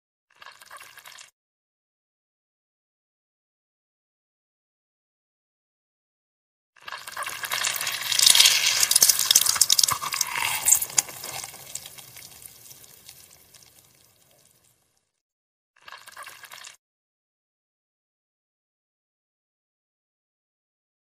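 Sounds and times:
orange squelching in a hand: 7.2s - 14.5s.

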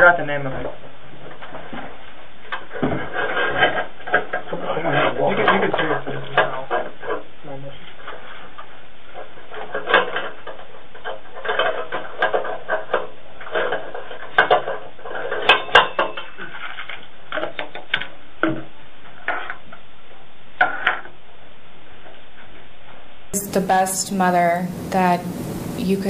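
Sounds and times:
small objects clicking and clattering: 9.4s - 19.8s
steady hiss: 18.1s - 26.0s.

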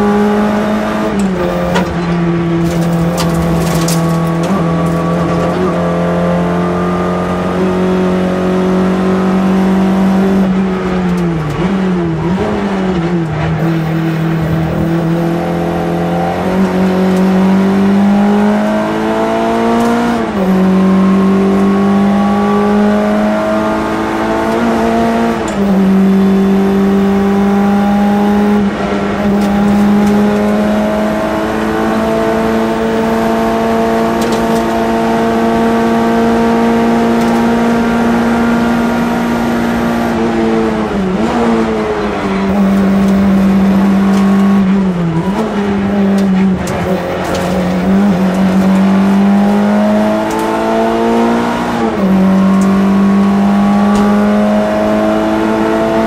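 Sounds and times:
car engine at high revs: 0.0s - 56.0s.

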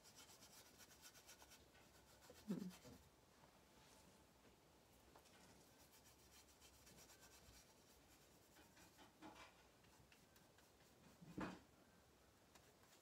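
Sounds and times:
brushing or tapping sound: 0.0s - 3.0s, 5.2s - 11.6s
paintbrush scratching: 0.0s - 3.1s, 5.2s - 9.2s, 9.8s - 11.4s, 12.5s - 13.0s.

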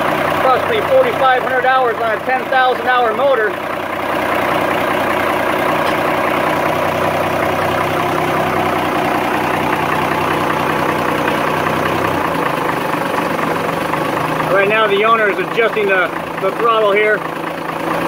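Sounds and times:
marine diesel engine idling: 0.0s - 18.0s.

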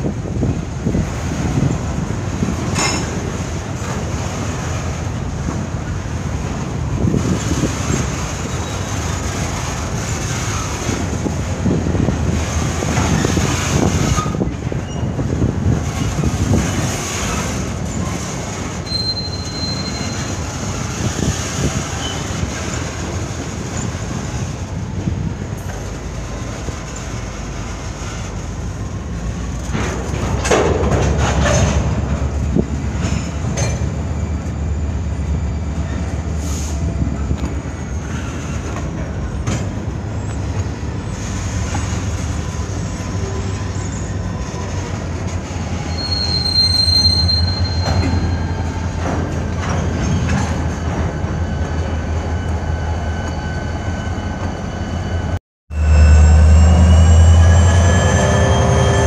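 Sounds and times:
steel wheels rumbling on rail: 0.0s - 59.0s
high wheel squeal: 13.0s - 15.3s, 17.2s - 24.4s, 40.2s - 49.1s, 50.0s - 59.0s.

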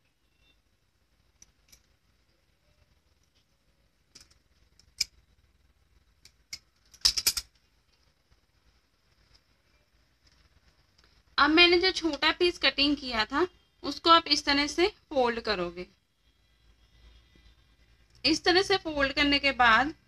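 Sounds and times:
bangles clinking: 6.5s - 7.6s.

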